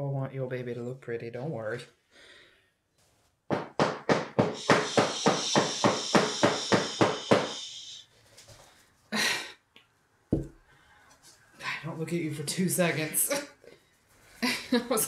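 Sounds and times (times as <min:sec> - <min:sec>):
wooden mold knocking on floor: 0:10.3 - 0:10.6.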